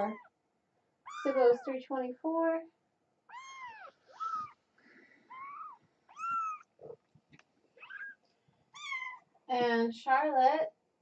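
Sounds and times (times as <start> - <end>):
kittens mewing: 1.0 - 1.7, 3.3 - 4.6, 5.2 - 7.0, 7.8 - 9.3.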